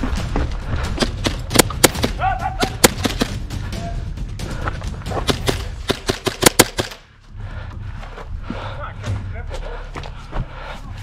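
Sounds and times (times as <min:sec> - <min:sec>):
airsoft gun shots: 0:01.2 - 0:03.4, 0:05.3 - 0:07.0.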